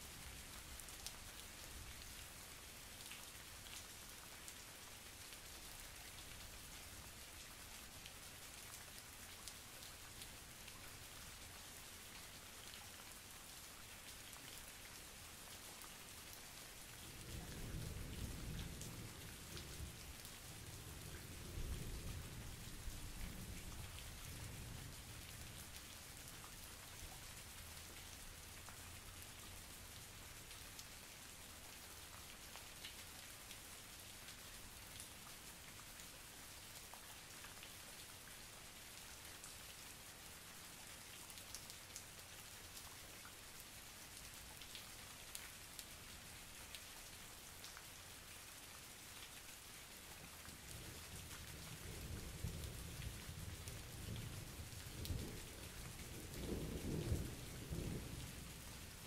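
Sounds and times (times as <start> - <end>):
steady rain falling: 0.0 - 59.0
low rumble of thunder: 17.1 - 25.2, 50.8 - 59.0.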